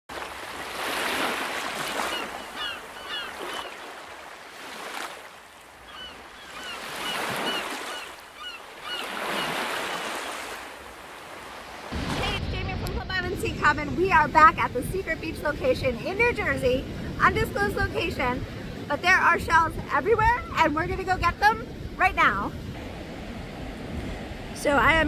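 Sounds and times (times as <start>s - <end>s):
ocean waves breaking: 0.1s - 25.0s
short high bird calls: 2.0s - 3.9s, 5.9s - 10.4s.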